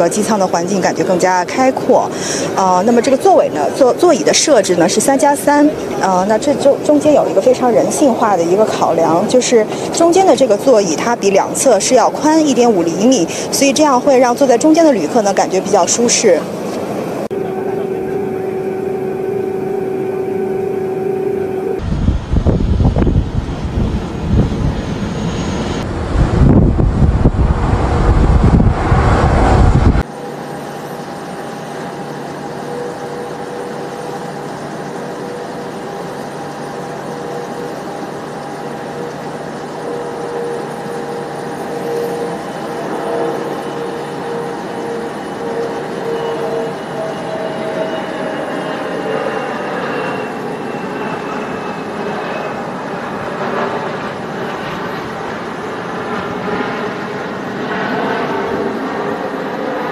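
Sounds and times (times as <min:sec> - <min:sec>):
distant jet airliner landing: 0:00.0 - 0:59.9
loud jet takeoff rush: 0:00.0 - 0:59.9
wind on microphone: 0:21.8 - 0:30.1.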